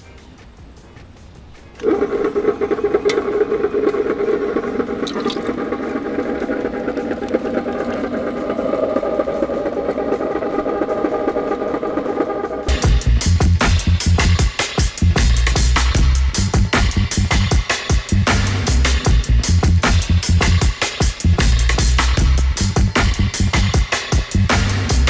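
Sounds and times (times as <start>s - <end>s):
liquid being poured: 1.8s - 5.6s
ice cream maker motor humming: 1.8s - 11.4s.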